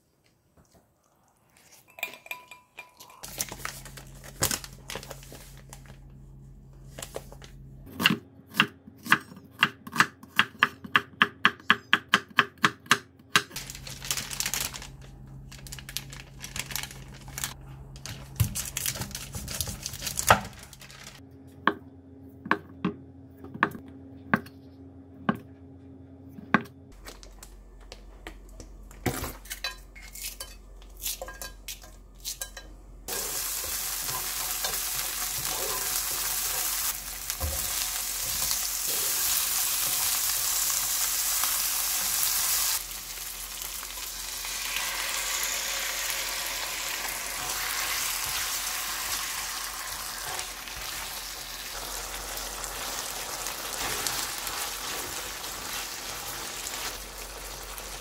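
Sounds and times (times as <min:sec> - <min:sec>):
plastic wrapping crinkling and tearing: 0:03.2 - 0:06.0, 0:13.6 - 0:21.2, 0:47.3 - 0:58.0
steady low hum: 0:03.8 - 0:07.9.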